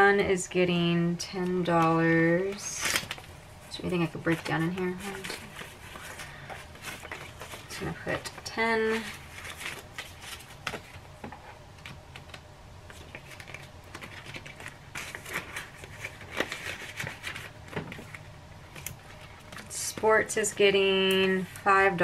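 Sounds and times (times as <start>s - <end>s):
paper banknotes rustling: 1.8s - 11.0s, 12.1s - 19.9s.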